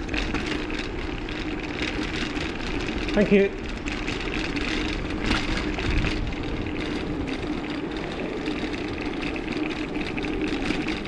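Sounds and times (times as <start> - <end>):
wind rushing over microphone: 3.5 - 11.0.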